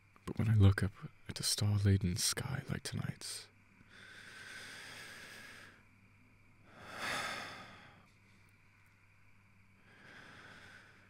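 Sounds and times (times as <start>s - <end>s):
faint low hum: 0.0s - 11.0s
man breathing: 3.8s - 5.9s, 6.6s - 8.5s, 9.7s - 11.0s.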